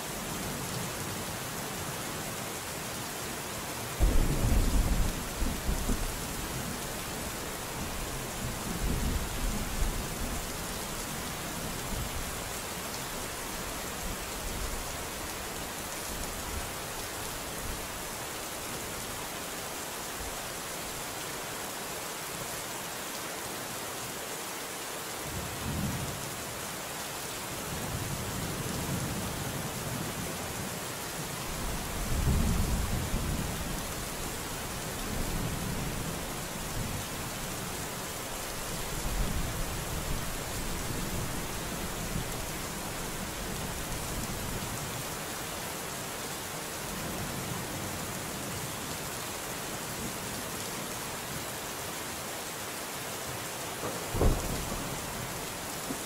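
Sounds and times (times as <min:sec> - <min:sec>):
steady rain falling: 0:00.0 - 0:56.0
thunder rumbling: 0:04.0 - 0:06.6, 0:53.8 - 0:55.3.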